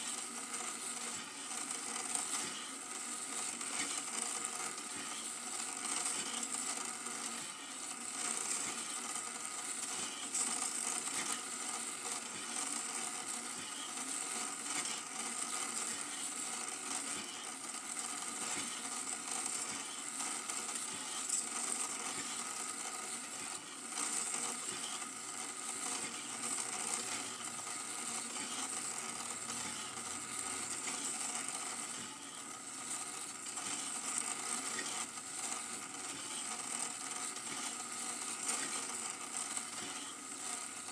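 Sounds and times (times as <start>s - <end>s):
film projector whirring and clattering: 0.0s - 40.9s.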